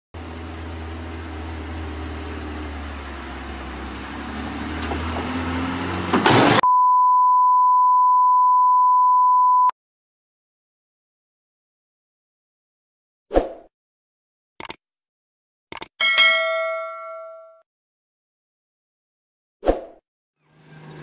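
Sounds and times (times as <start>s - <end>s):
truck engine humming: 0.2s - 6.6s
steady test-tone beep: 6.6s - 9.7s.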